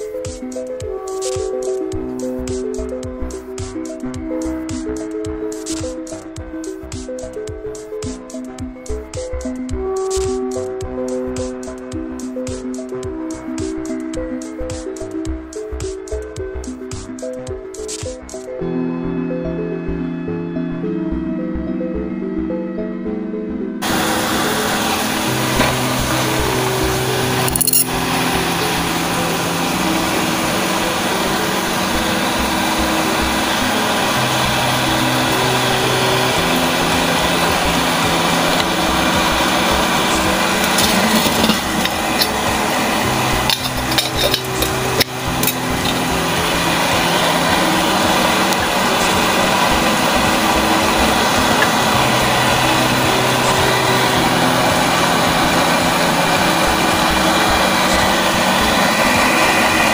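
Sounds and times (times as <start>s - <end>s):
stove burning with hiss: 23.8s - 59.9s
light metallic clanks: 43.4s - 46.0s.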